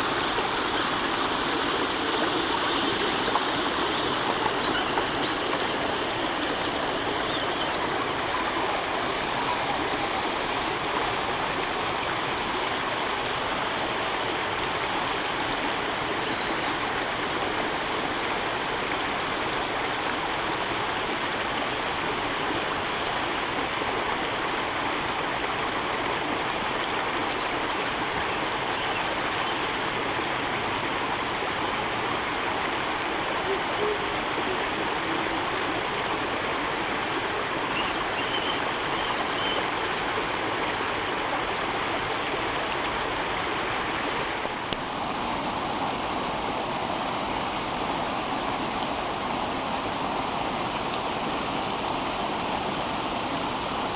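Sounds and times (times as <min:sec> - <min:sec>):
stream rushing over stones: 0:00.0 - 0:53.9.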